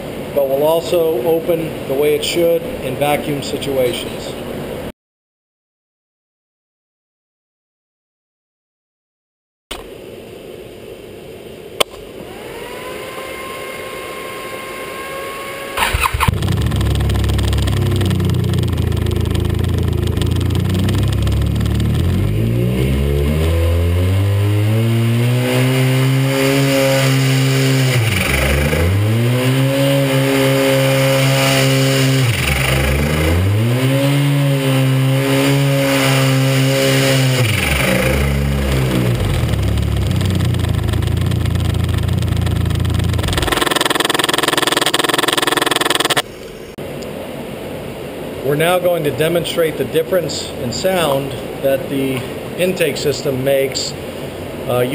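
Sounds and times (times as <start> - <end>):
starter whine: 12.2 - 46.3
snowmobile engine revving: 12.3 - 46.2.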